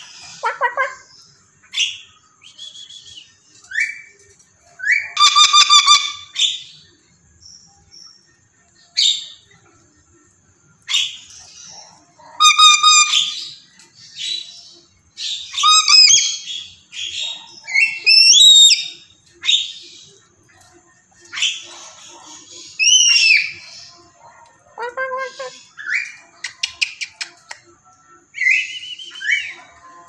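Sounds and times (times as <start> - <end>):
parrot calling squawks and whistles: 0.0 - 1.1, 4.8 - 6.6, 12.3 - 13.6, 15.2 - 19.8, 22.7 - 23.7.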